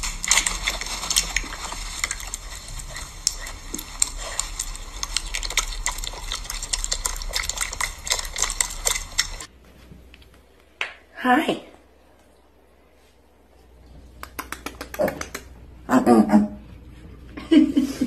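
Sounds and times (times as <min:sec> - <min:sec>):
piglet smacking and chewing: 0:00.0 - 0:09.5, 0:13.8 - 0:15.7.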